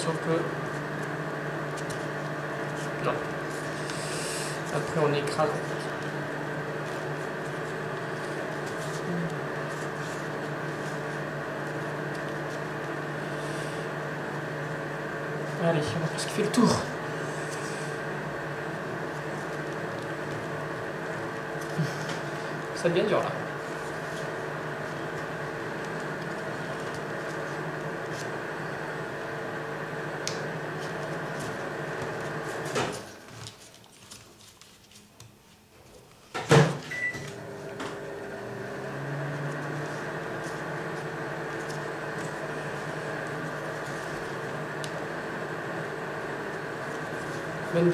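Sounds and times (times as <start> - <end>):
machine hum: 0.0 - 34.2, 36.4 - 47.9
paper ticks and rustles: 1.8 - 2.8, 30.2 - 36.2.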